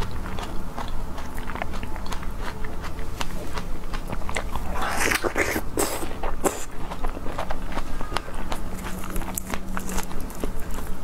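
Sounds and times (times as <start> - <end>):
wet chewing clicks: 0.0 - 11.0
juicy bite into strawberry: 3.2 - 10.2.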